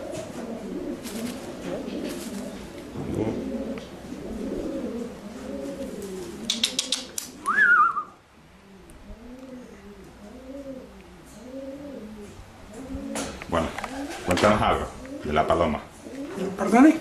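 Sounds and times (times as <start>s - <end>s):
pigeons cooing: 0.0s - 17.0s
sharp clicks: 6.4s - 7.6s
wavering whistle: 7.4s - 8.2s.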